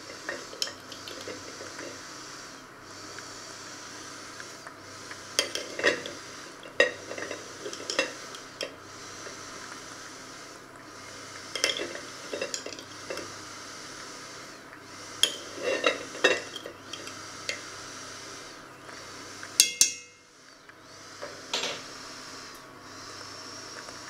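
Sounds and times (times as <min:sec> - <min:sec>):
low sizzle from a pot: 0:00.0 - 0:24.0
pots and utensils clinking: 0:00.1 - 0:01.9, 0:05.4 - 0:08.8, 0:11.5 - 0:13.3, 0:15.2 - 0:17.6, 0:19.6 - 0:20.2, 0:21.5 - 0:21.9.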